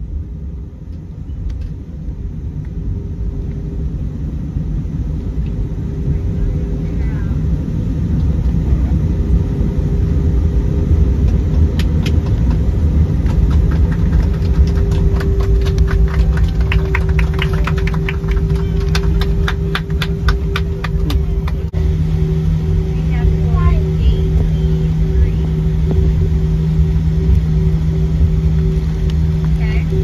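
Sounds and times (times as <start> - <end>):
low jet engine rumble: 0.0 - 30.0
steady cabin hum: 0.0 - 30.0.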